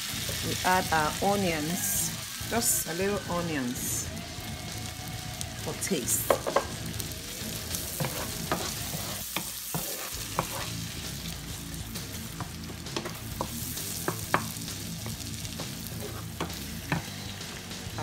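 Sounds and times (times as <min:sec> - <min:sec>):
food sizzling in a frying pan: 0:00.0 - 0:18.0
wooden spatula tapping and scraping pan: 0:06.2 - 0:06.7, 0:08.0 - 0:10.7, 0:12.4 - 0:15.2.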